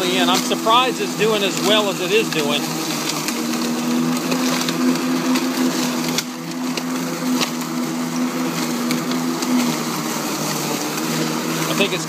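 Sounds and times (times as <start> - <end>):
electric lawn mower hum: 0.0 - 12.0
leaves crackling in mower: 0.0 - 12.0.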